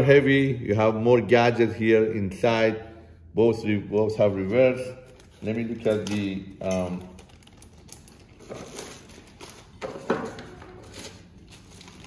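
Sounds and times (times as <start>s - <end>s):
plastic sleeve rustling: 4.9s - 12.0s.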